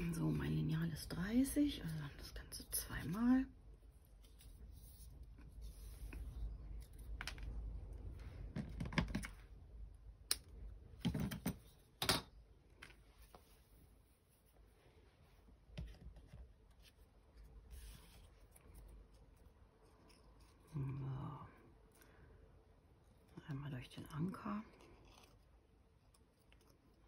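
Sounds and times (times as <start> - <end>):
soft rustling: 12.9 - 21.0.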